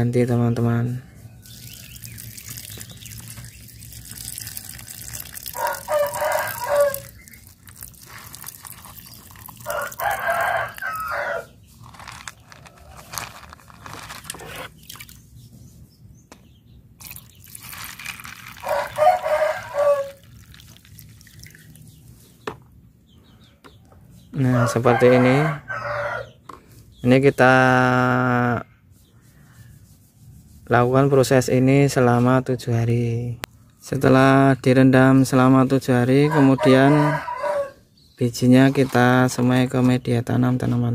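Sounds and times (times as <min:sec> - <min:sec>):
water pouring and splashing: 0:01.4 - 0:11.2, 0:11.8 - 0:15.3, 0:17.0 - 0:22.3
rooster crowing: 0:04.5 - 0:07.1, 0:09.6 - 0:11.6, 0:18.6 - 0:20.3, 0:24.5 - 0:26.3, 0:36.2 - 0:37.9.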